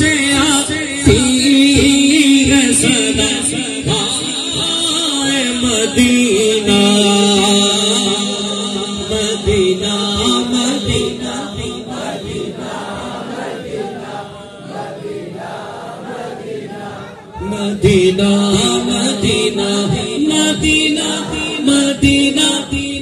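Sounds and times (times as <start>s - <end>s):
man singing through microphone: 0.0s - 15.0s, 16.7s - 23.0s
crowd of men chanting: 7.4s - 23.0s.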